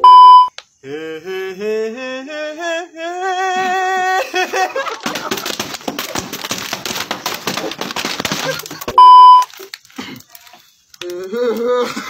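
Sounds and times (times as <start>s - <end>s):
person singing: 0.8s - 5.0s, 11.0s - 12.0s
crackly noise and clatter: 4.6s - 12.0s.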